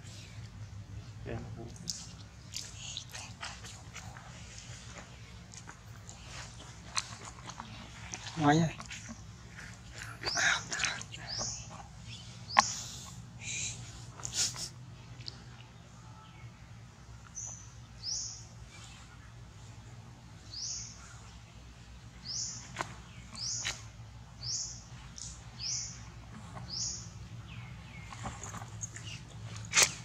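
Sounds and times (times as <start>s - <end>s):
steady low hum: 0.0s - 30.0s
bird chirping: 6.1s - 13.8s, 20.4s - 21.4s, 22.2s - 30.0s.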